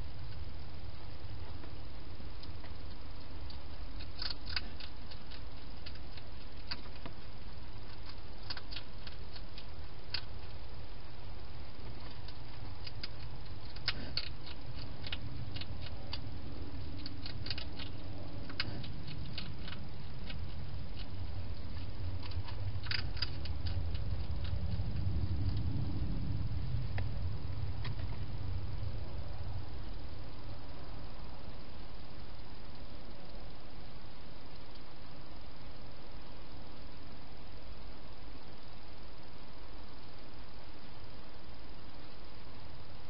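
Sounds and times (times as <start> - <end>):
hedgehog chewing and crunching: 0.0 - 30.7
steady low hum: 0.0 - 43.0.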